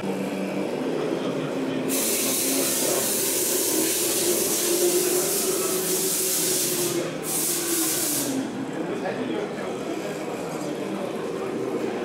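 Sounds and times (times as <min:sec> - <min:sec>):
hiss: 0:01.9 - 0:08.5.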